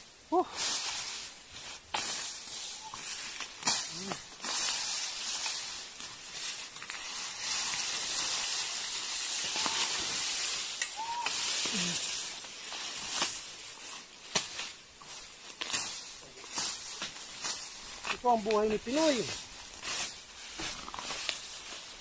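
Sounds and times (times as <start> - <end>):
dry grass rustling: 0.0 - 22.0
blade chopping grass: 14.3 - 14.8.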